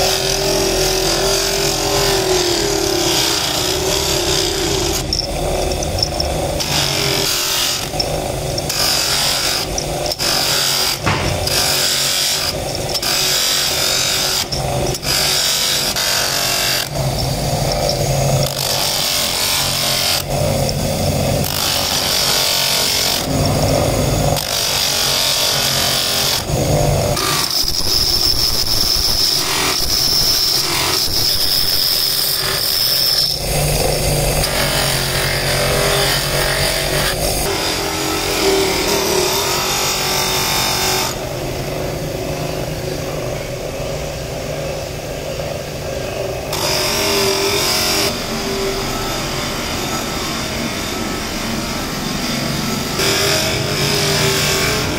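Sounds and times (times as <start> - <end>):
electric motor hum: 0.0 - 54.9
metal grinding on grinding wheel: 0.0 - 54.9.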